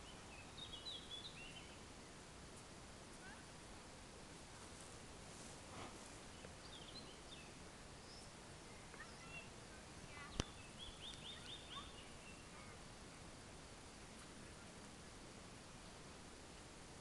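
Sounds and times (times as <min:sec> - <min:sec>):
songbird chirps and trills: 0:00.0 - 0:16.2.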